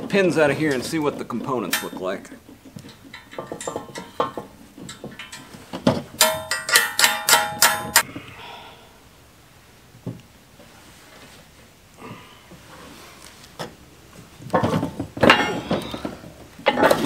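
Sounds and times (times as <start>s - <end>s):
ringing metal clanks: 1.5s - 5.6s, 6.2s - 8.0s, 14.6s - 16.0s.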